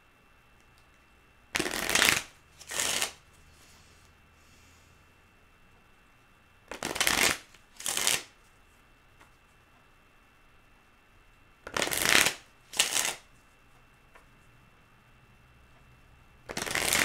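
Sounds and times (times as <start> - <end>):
cards being shuffled: 1.6 - 3.2, 6.7 - 8.4, 11.6 - 13.3, 16.5 - 17.0.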